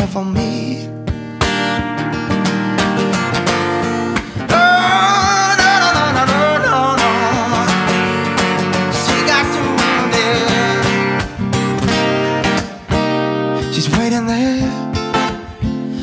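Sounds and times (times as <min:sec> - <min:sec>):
man singing wordless run: 0:00.0 - 0:00.9, 0:04.5 - 0:07.9, 0:09.0 - 0:11.2, 0:13.7 - 0:15.0
acoustic guitar strumming: 0:00.0 - 0:16.0.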